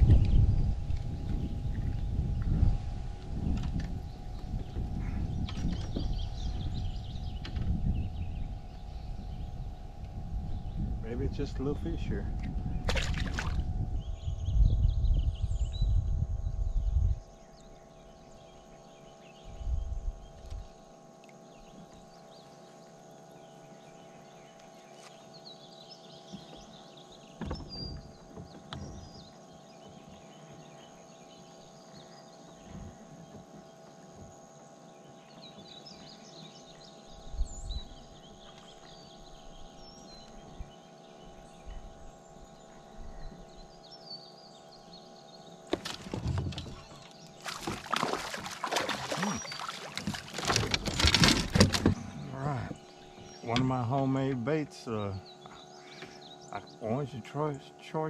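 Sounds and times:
faint steady hum: 0.0s - 58.0s
gear rustling and crackling: 45.8s - 52.2s.

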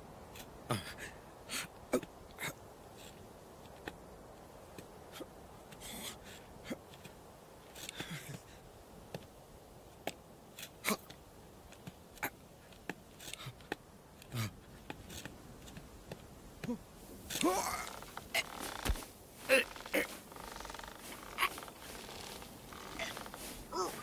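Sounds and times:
low hiss: 0.0s - 24.0s
scraping rustles: 17.0s - 24.0s.

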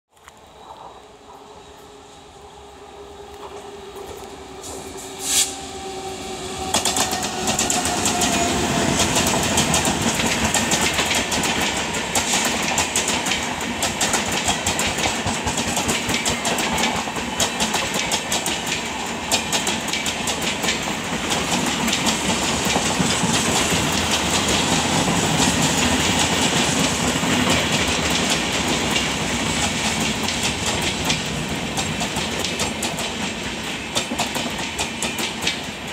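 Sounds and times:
locomotive whine: 0.2s - 12.0s
train wheels rumbling: 0.4s - 35.9s
clickety-clack over rail joints: 3.3s - 4.9s, 6.6s - 35.9s.

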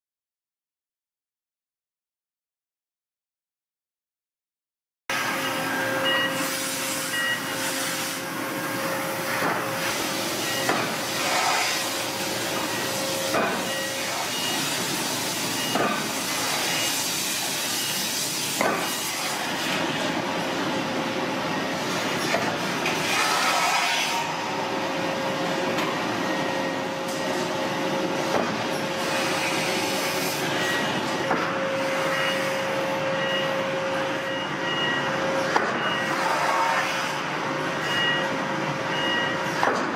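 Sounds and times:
machinery hiss: 5.2s - 19.9s
short high beeps: 5.4s - 7.8s, 10.4s - 10.8s, 12.6s - 14.8s, 15.5s - 15.9s, 32.0s - 35.2s, 37.8s - 39.5s.

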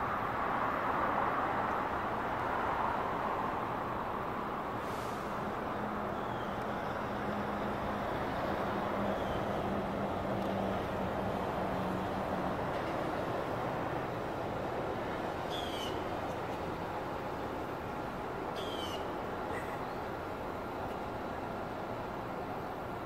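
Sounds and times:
vehicle traffic rushing: 4.6s - 21.4s.

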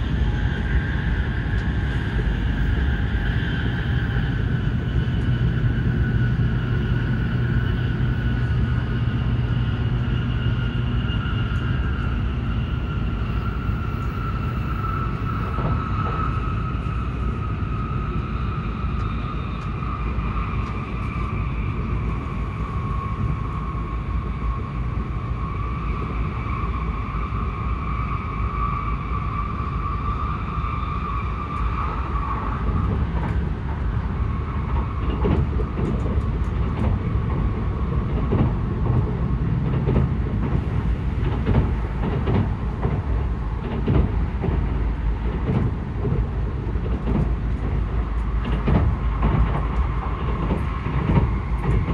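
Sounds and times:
train interior low rumble: 0.0s - 51.9s.

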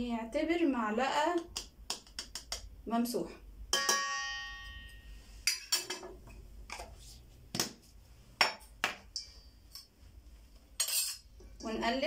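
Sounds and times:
metal spoon striking ringing bowl: 3.7s - 5.1s
utensils clinking against dishes: 10.8s - 11.3s.

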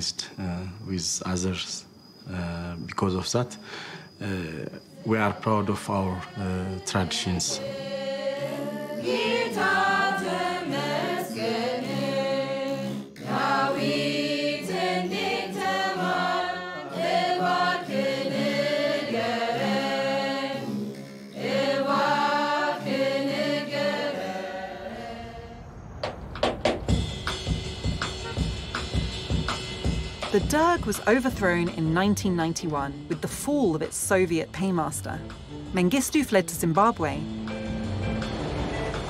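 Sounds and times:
chanting in gliding phrases: 4.2s - 25.8s.

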